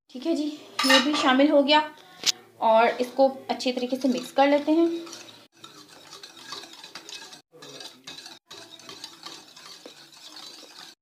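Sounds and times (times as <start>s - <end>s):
utensil stirring eggs in bowl: 3.0s - 11.0s
utensil clinking against bowl: 4.0s - 11.0s.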